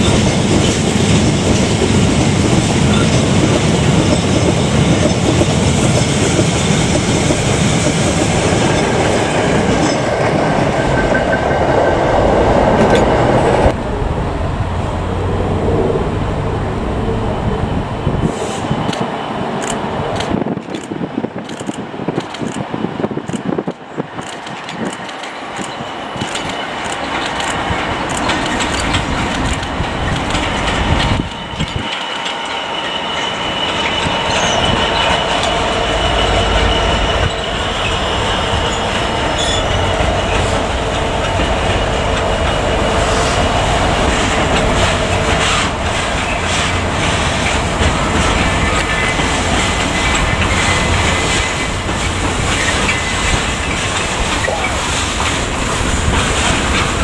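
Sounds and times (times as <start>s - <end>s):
diesel locomotive engines: 0.0s - 57.0s
freight train rumbling and clattering: 0.0s - 57.0s
wheels clicking over rail joints: 23.7s - 35.8s, 44.0s - 57.0s.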